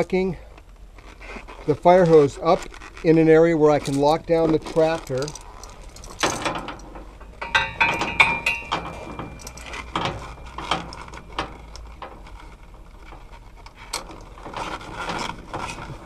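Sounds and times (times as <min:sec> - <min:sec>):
metal chain clinking and rattling: 0:03.7 - 0:15.9.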